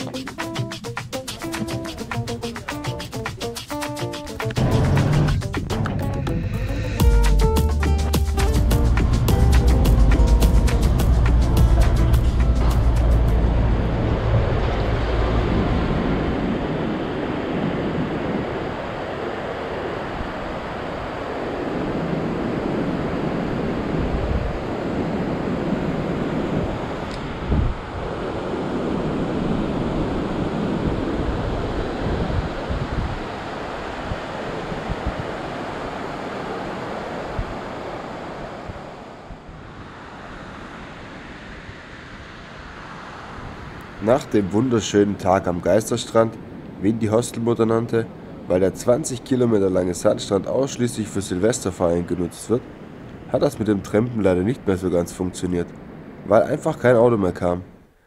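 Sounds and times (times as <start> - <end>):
ocean surf breaking: 0.0 - 58.0
wind buffeting microphone: 8.7 - 47.0.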